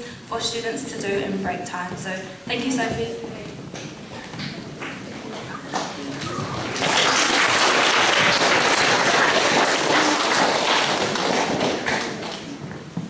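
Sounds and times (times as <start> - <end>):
audience applauding: 4.8 - 12.6.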